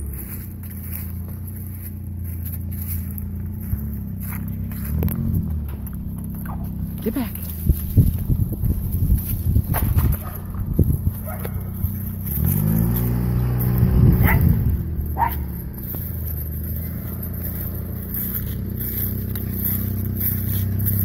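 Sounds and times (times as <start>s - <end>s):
small car engine revving: 0.0s - 21.0s
small dog barking: 10.1s - 10.5s, 11.2s - 11.8s, 14.1s - 15.6s.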